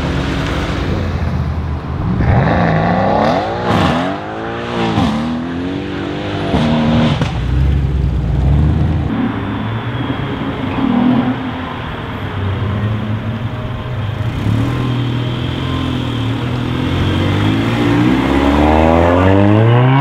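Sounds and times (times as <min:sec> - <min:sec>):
second car engine rumbling: 0:00.0 - 0:20.0
car engine revving hard: 0:02.2 - 0:07.4, 0:16.7 - 0:20.0.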